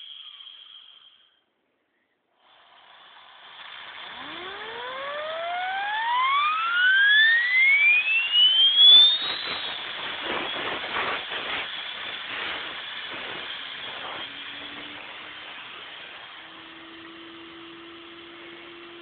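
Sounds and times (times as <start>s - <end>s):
grinding spindle whine: 0.0s - 1.5s, 2.4s - 19.0s
spindle hiss: 0.0s - 4.1s.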